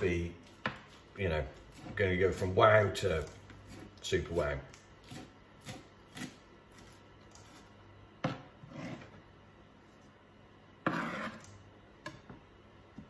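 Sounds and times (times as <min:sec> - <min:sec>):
knife on plastic chopping board: 0:01.6 - 0:04.0, 0:05.0 - 0:09.2, 0:10.8 - 0:11.6.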